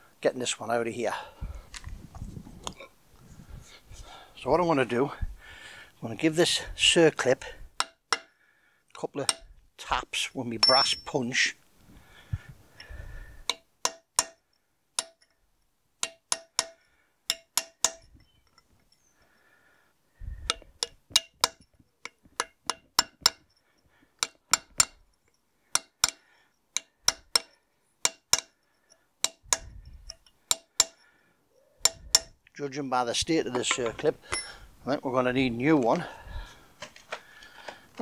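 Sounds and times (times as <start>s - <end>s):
hammer tapping metal punch: 7.8s - 8.4s, 9.2s - 9.5s, 13.5s - 15.4s, 16.0s - 18.6s, 20.4s - 23.6s, 24.2s - 31.0s, 31.8s - 32.4s, 33.5s - 34.6s.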